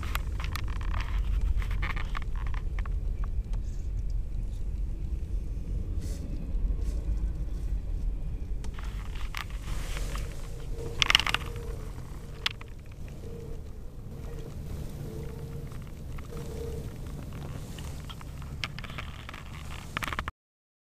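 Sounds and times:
freight train rumbling past: 5.2 - 20.0.

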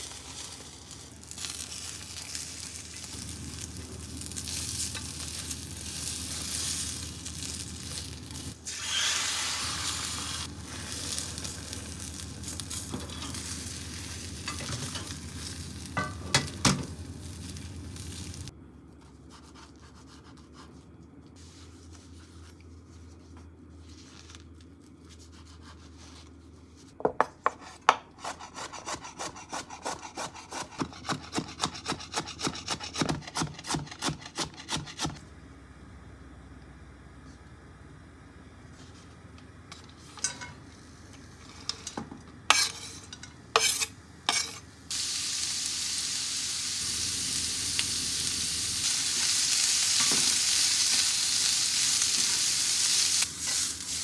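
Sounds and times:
egg sizzling in pan: 0.0 - 18.5, 44.9 - 54.0.

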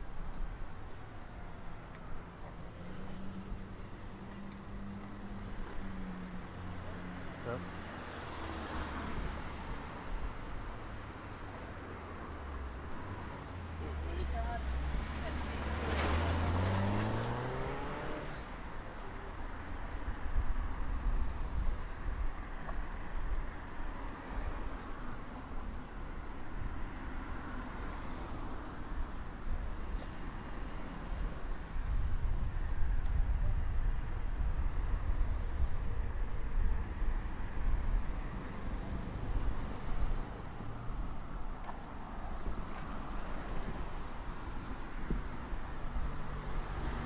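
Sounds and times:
low traffic rumble: 0.0 - 47.0
cars driving past: 2.5 - 18.9, 35.0 - 47.0.

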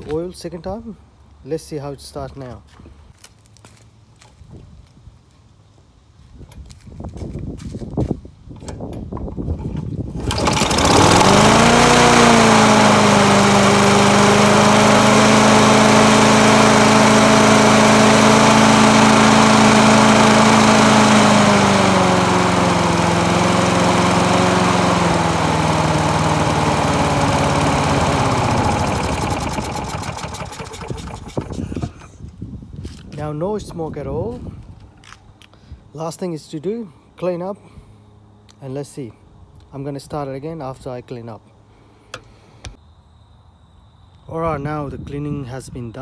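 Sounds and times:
lawn mower engine running: 9.5 - 32.1.

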